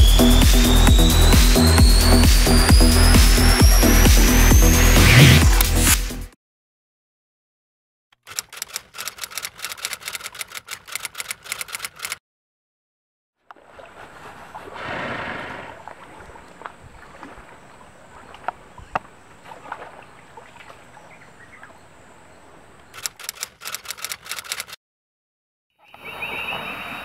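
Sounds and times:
typewriter key strikes: 0:08.2 - 0:12.2
light clicks: 0:23.0 - 0:24.8.

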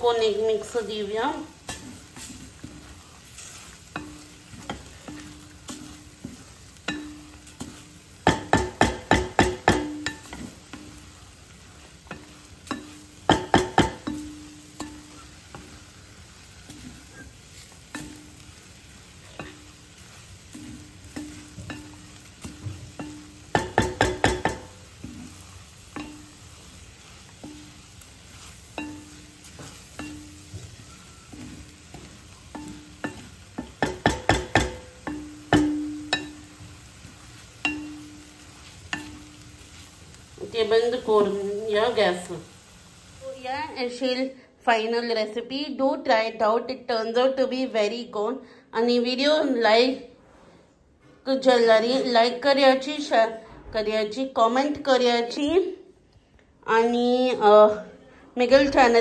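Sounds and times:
eggs sizzling: 0:00.0 - 0:44.3
spatula scraping a pan: 0:00.2 - 0:43.2
spatula knocking against a pan: 0:04.0 - 0:11.0, 0:12.0 - 0:15.7, 0:21.0 - 0:26.4, 0:28.7 - 0:36.9.

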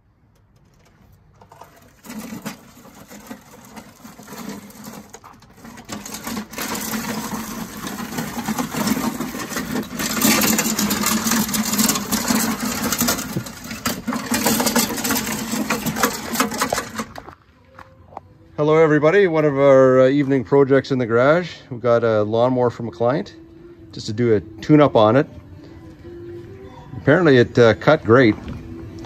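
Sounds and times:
clunky mower blade noise: 0:00.3 - 0:17.4
lawn mower engine running: 0:00.6 - 0:17.4.

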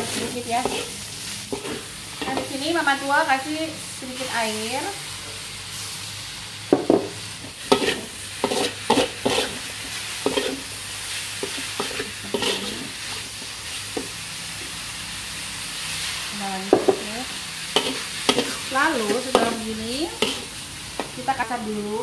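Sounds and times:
metal ladle scraping a wok: 0:00.0 - 0:03.1, 0:07.5 - 0:14.1, 0:17.6 - 0:21.1
frying sizzle: 0:00.0 - 0:22.0.

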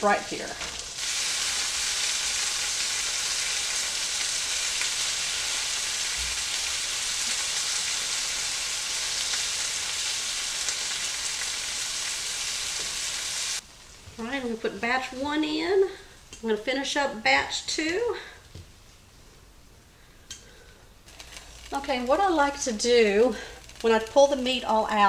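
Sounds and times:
meat sizzling in a skillet: 0:00.0 - 0:14.0, 0:21.1 - 0:25.0.

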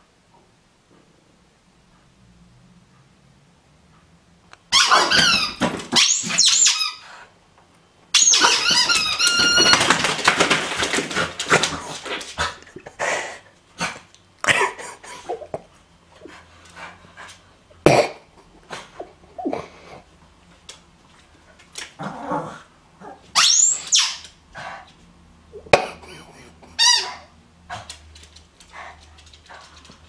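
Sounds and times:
small dog yelping and whining: 0:04.7 - 0:07.0, 0:08.2 - 0:09.9, 0:23.0 - 0:24.3.

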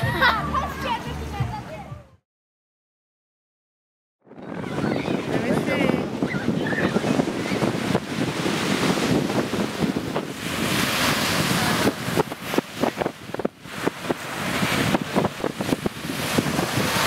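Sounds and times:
wind buffeting microphone: 0:04.2 - 0:17.0
surf breaking on beach: 0:04.3 - 0:17.0.

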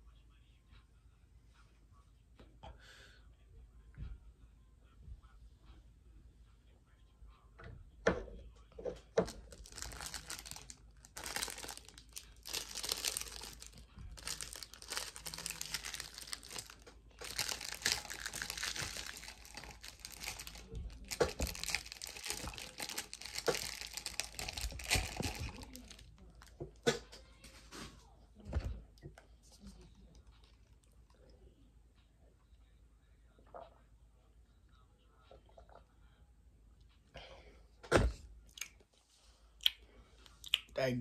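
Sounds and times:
crinkling handling noise: 0:08.8 - 0:28.8.

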